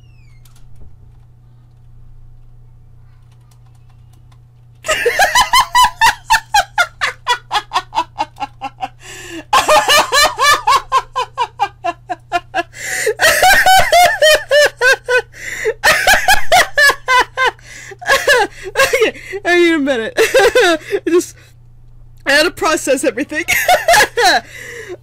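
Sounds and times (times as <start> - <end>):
woman laughing hard: 4.8 - 19.2, 20.2 - 21.3, 23.5 - 25.0
gasping breaths: 9.0 - 9.5.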